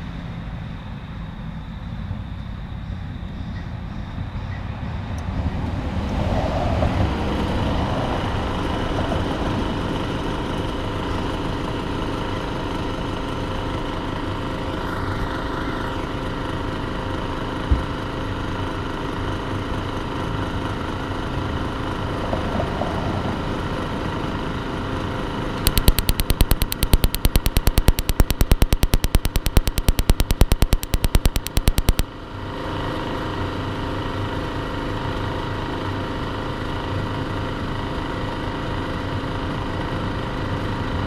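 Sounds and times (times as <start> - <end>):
igniter sparking ticks: 25.7 - 32.0.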